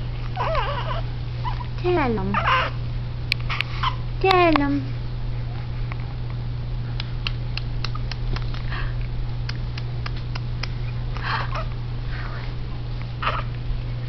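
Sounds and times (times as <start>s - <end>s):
low electrical hum: 0.0s - 14.0s
breathy rustling noises: 11.1s - 12.7s.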